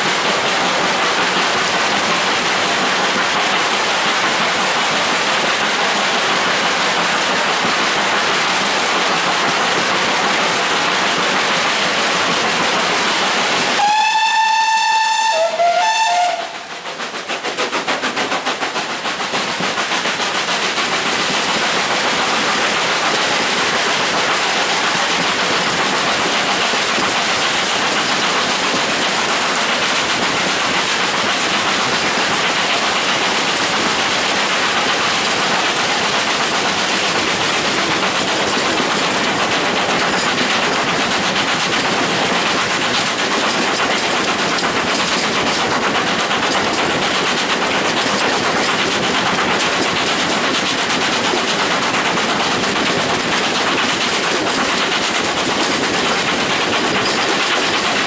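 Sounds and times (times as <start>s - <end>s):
steam train running: 0.0s - 58.0s
steam locomotive whistle: 13.8s - 16.8s.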